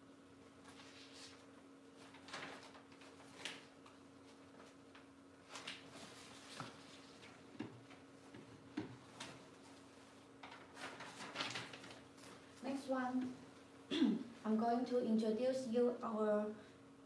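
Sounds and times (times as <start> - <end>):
low electrical hum: 0.0 - 17.0
plastic bag and paper rustling: 0.6 - 8.0, 9.1 - 12.7.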